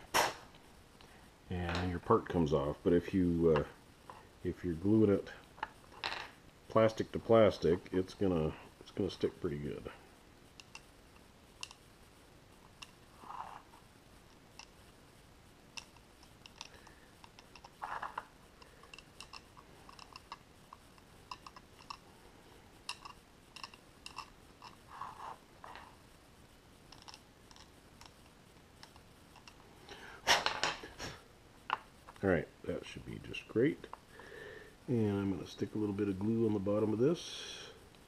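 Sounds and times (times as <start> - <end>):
plastic parts clicking and tapping: 15.8 - 22.0, 22.9 - 24.8, 26.9 - 29.6
soft rustles: 24.6 - 26.2.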